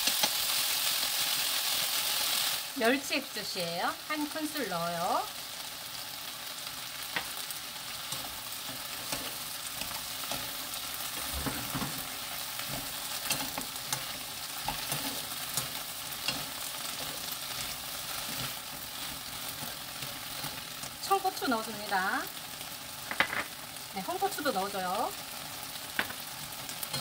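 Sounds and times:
onions sizzling in a frying pan: 0.0s - 27.0s
wooden spoons scraping a pan: 8.0s - 20.9s.

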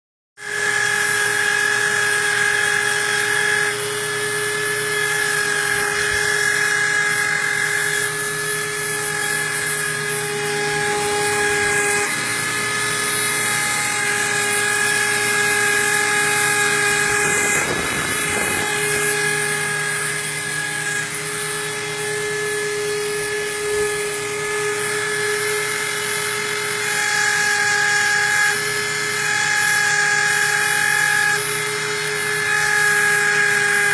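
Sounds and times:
engraving machine whining: 0.4s - 33.9s.

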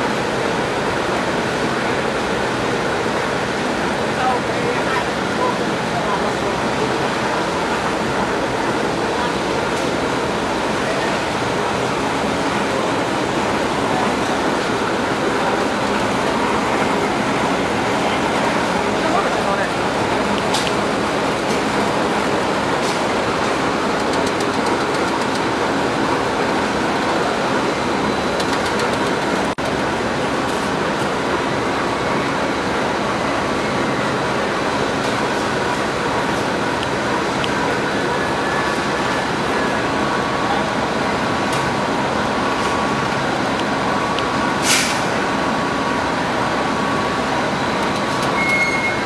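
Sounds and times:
conveyor machinery running: 0.0s - 49.0s
burst of hiss: 44.6s - 45.2s.

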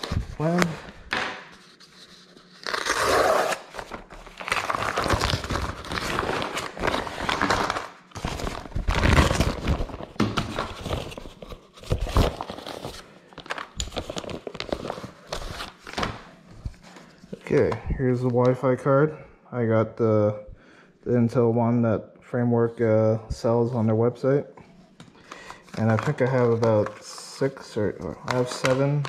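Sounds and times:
paper envelope crinkling: 3.6s - 16.2s.

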